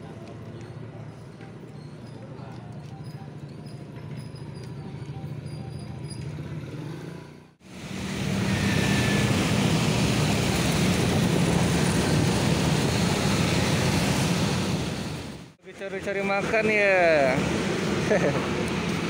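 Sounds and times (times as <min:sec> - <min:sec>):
motorcycle engine: 0:03.4 - 0:15.5.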